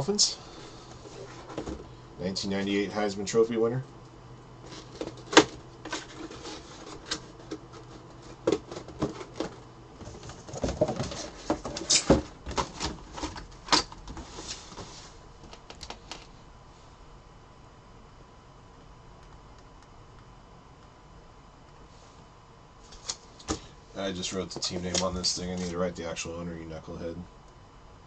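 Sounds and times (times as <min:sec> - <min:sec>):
faint low hum: 0:00.0 - 0:28.0
plastic case and box handling: 0:04.7 - 0:14.8.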